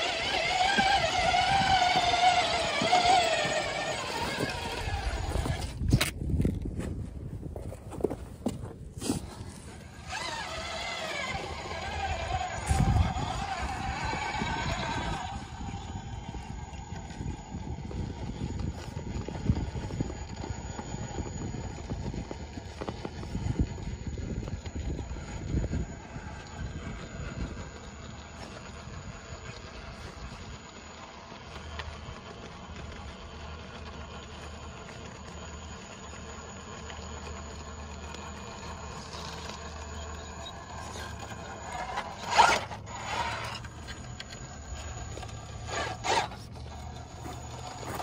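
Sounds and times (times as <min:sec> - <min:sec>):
toy car clattering on rock: 0:00.0 - 0:06.7, 0:27.9 - 0:48.0
electric motor low hum: 0:00.0 - 0:48.0.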